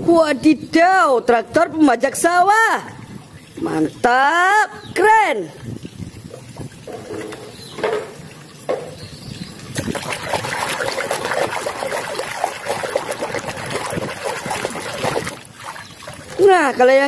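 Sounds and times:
hand splashing in water: 9.7s - 16.4s.

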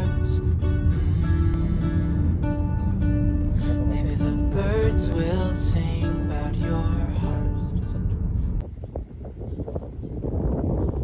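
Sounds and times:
wind buffeting microphone: 7.8s - 11.0s.

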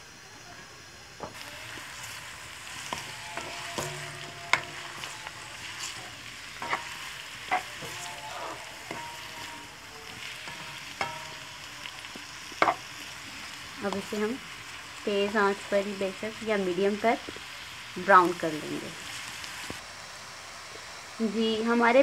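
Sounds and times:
onions sizzling in oil: 0.0s - 22.0s
spatula clinking against pan: 2.8s - 12.8s.

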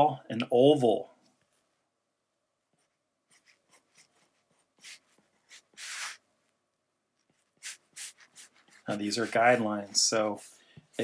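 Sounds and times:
stylus scratching on glass screen: 7.2s - 11.0s.

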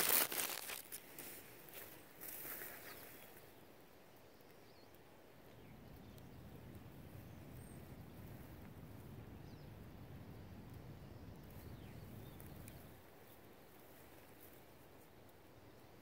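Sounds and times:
phone set down on forest floor: 0.0s - 1.0s
faint low background noise: 0.0s - 16.0s.

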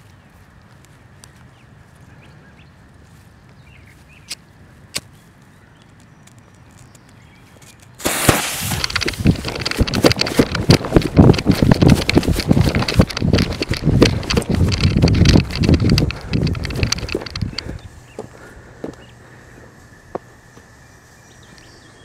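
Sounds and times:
rustling through grass: 0.0s - 18.6s
running footsteps thumping: 8.0s - 19.0s.

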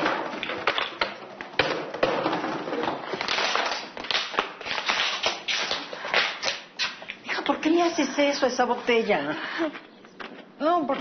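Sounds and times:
plastic bottles crackling: 0.0s - 7.2s.

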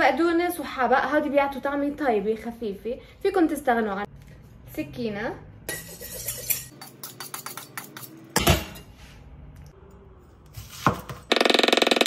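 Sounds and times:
knife scraping on sharpening steel: 5.7s - 7.6s.

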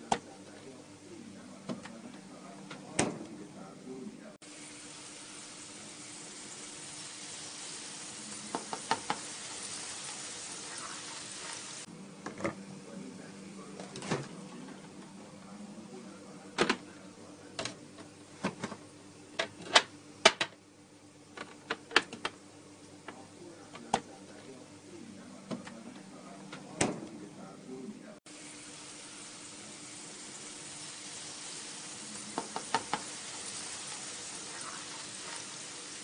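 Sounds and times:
sizzling hiss: 4.4s - 11.9s, 28.3s - 36.0s
wooden spatula scraping a pan: 33.4s - 35.6s.

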